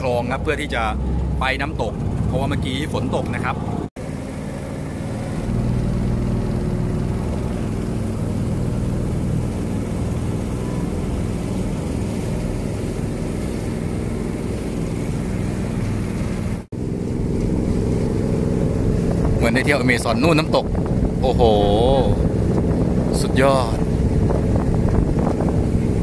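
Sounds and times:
boat engine droning: 0:00.0 - 0:26.0
water noise: 0:00.0 - 0:26.0
wind noise: 0:15.2 - 0:26.0.

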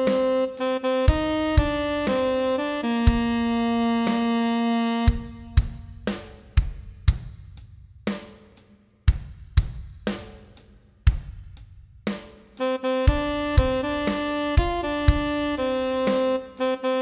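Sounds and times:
tenor saxophone note: 0:00.0 - 0:05.8
drum kit beat: 0:00.0 - 0:17.0.

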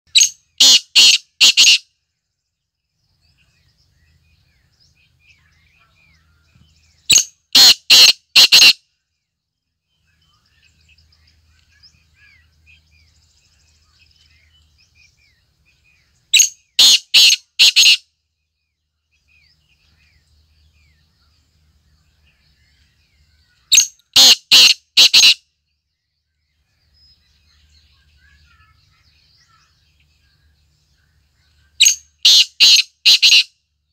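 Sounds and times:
francolin calling: 0:00.1 - 0:01.8, 0:05.3 - 0:08.8, 0:16.0 - 0:18.0, 0:23.5 - 0:25.4, 0:31.7 - 0:33.5
small birds chirping: 0:00.1 - 0:33.9.

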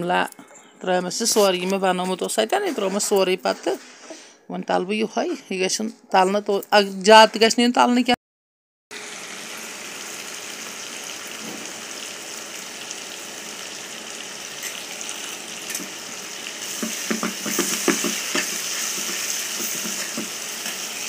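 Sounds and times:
vegetables sizzling in oil: 0:08.9 - 0:21.0
spoon scraping a pan: 0:16.6 - 0:21.0.

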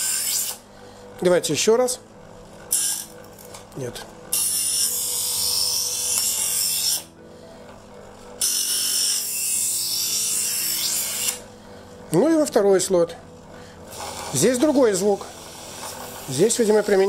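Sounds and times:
knife grinding in sharpener: 0:00.0 - 0:00.6, 0:02.7 - 0:03.6, 0:04.3 - 0:07.1, 0:08.3 - 0:11.5, 0:13.9 - 0:17.0
knife sharpener motor hum: 0:00.0 - 0:00.7, 0:02.4 - 0:03.6, 0:04.2 - 0:11.5, 0:13.8 - 0:17.0.

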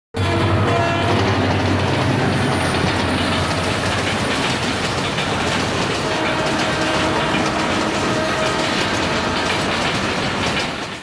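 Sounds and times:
diesel locomotive engine running: 0:00.2 - 0:11.0
train wheels clattering on rails: 0:00.3 - 0:11.0.

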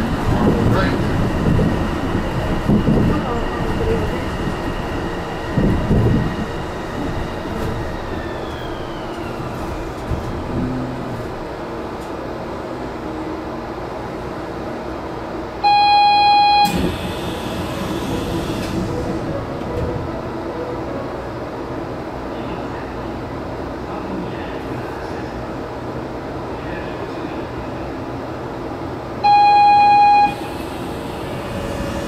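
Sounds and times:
train motor whine: 0:05.2 - 0:11.5, 0:16.5 - 0:19.9, 0:29.2 - 0:32.0.

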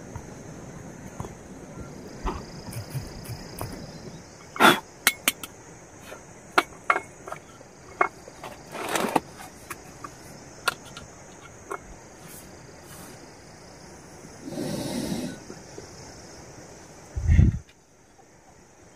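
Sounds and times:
steady high-pitched hiss: 0:00.0 - 0:18.9
steel mugs knocking and clinking: 0:05.0 - 0:05.6, 0:06.5 - 0:08.2.

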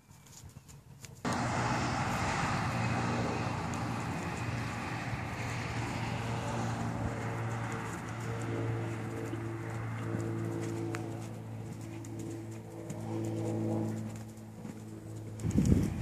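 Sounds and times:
steady low hum: 0:00.0 - 0:16.0
wind noise on microphone: 0:15.3 - 0:16.0.

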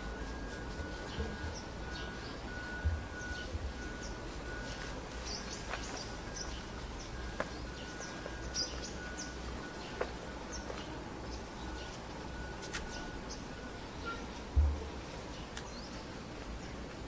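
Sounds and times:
thin high tone: 0:00.0 - 0:15.2
small birds chirping: 0:00.2 - 0:17.0.

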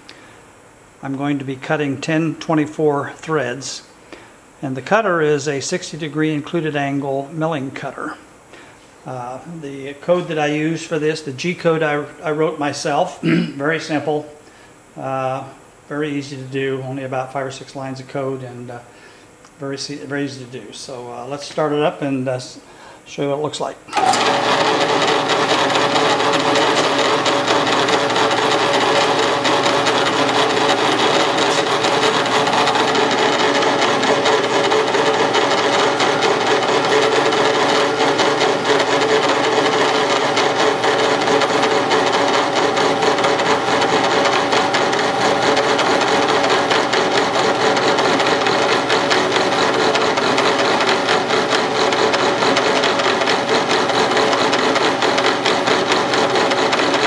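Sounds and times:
milling machine running: 0:23.9 - 0:57.0.

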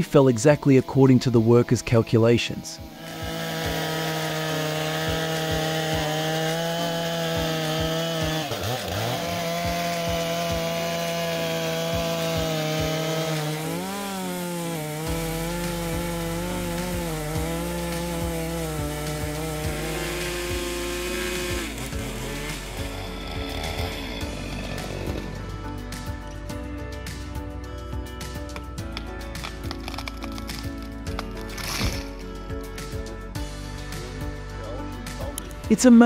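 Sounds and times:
chainsaw cutting tree trunk: 0:01.8 - 0:27.3, 0:28.2 - 0:33.0.

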